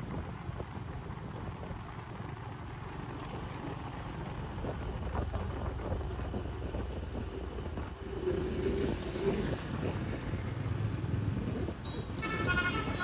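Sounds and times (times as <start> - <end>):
road traffic rumbling: 0.0 - 13.0
wind on microphone: 4.4 - 13.0.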